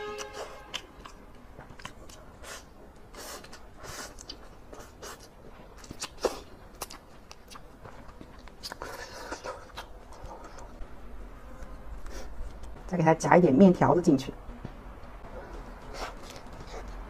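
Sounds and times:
chewing and smacking: 0:00.4 - 0:10.8, 0:15.2 - 0:17.0.

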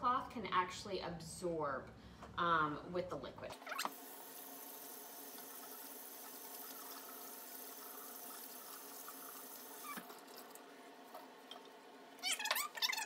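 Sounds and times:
water running from faucet: 0:03.7 - 0:10.6.

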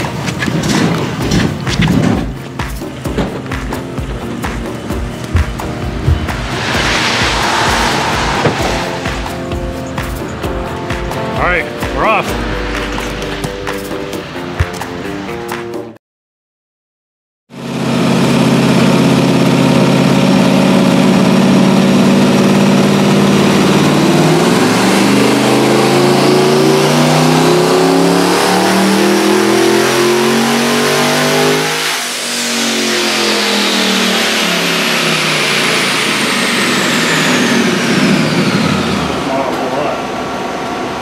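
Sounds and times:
high whine sliding downward: 0:04.3 - 0:10.9, 0:21.1 - 0:40.6
engine revving on dyno: 0:17.6 - 0:41.0.

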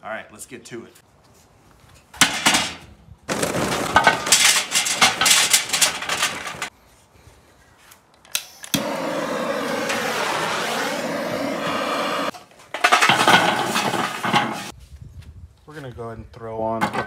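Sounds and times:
charcoal clattering against metal: 0:02.2 - 0:06.7, 0:12.7 - 0:14.7
torch flame hissing: 0:08.8 - 0:12.4.

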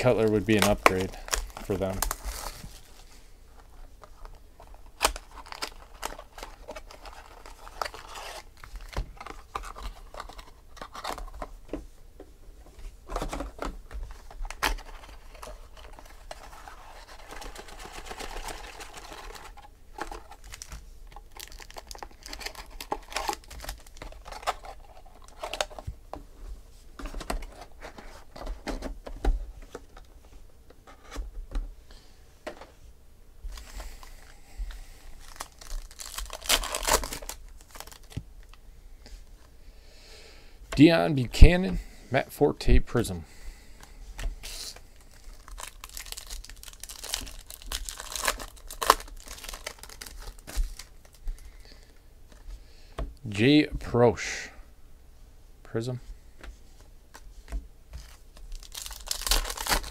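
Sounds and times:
foil wrappers crinkling: 0:00.0 - 0:11.5, 0:14.1 - 0:25.9, 0:33.5 - 0:38.6, 0:44.4 - 0:52.4, 0:57.9 - 0:59.9.

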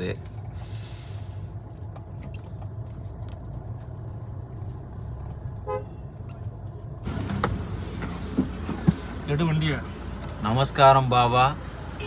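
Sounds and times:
road traffic rumble: 0:00.0 - 0:12.0
car horn beep: 0:05.6 - 0:06.2.

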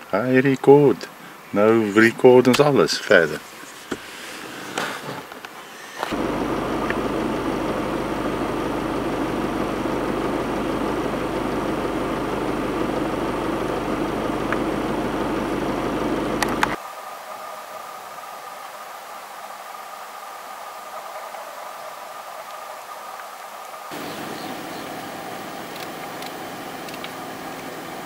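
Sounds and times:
vehicle engine humming: 0:05.8 - 0:16.8, 0:23.8 - 0:28.0.

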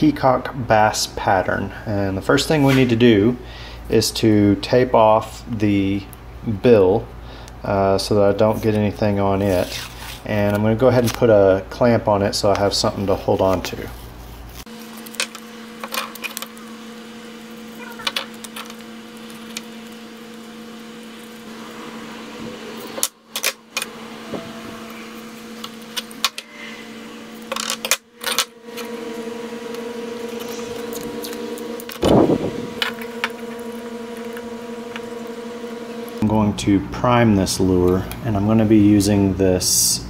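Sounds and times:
low hum: 0:12.6 - 0:40.0
tape clicks and rustles: 0:14.6 - 0:16.7, 0:17.6 - 0:21.4.

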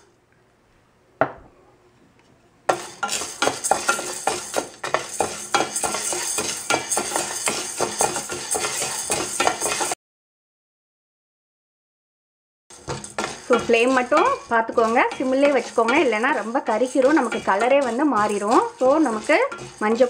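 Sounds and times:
spoon stirring lentils in metal pan: 0:02.7 - 0:10.0, 0:12.7 - 0:20.0.

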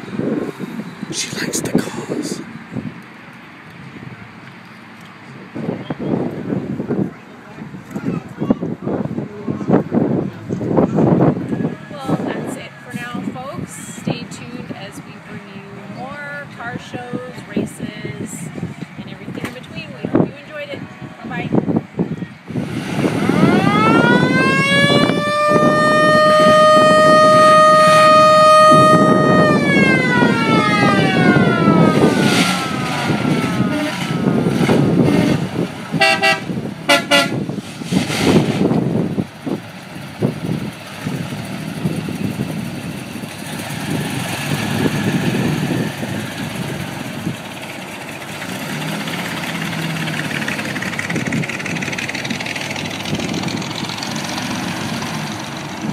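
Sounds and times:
car engines running: 0:00.0 - 0:55.9
siren-like car horn: 0:23.0 - 0:37.4
car horn toots: 0:25.6 - 0:29.6, 0:35.0 - 0:37.4.

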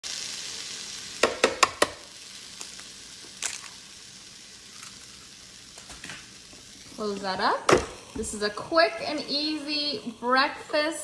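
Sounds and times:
food sizzling on hot plate: 0:00.0 - 0:11.0
egg cracking taps: 0:01.2 - 0:02.0.

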